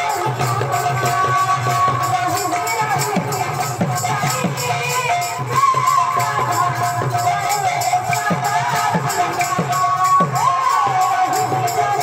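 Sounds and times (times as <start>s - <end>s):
small metal percussion: 0.0s - 12.0s
woman singing through microphone: 0.0s - 12.0s.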